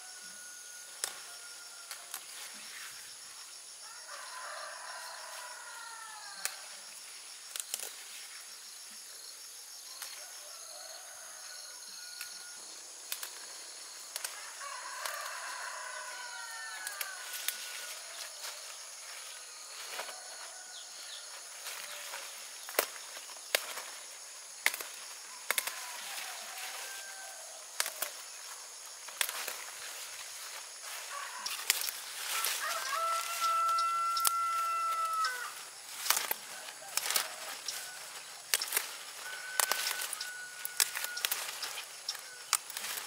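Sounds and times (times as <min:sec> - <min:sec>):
crickets and insects chorus: 0:00.0 - 0:43.0
leaves snapping and rustling: 0:07.5 - 0:08.1, 0:13.0 - 0:13.5, 0:14.1 - 0:14.4, 0:15.0 - 0:15.4, 0:16.7 - 0:18.6, 0:21.6 - 0:43.0
falling bird calls: 0:31.1 - 0:43.0.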